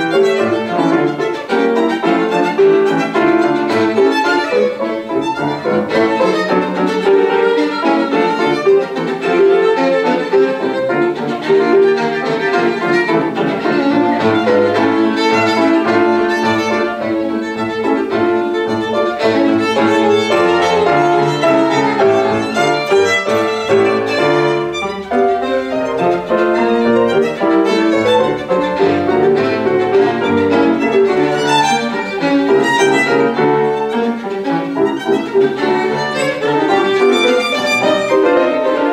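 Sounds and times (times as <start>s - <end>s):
piano playing: 0.0s - 38.9s
violin melody: 0.0s - 38.9s.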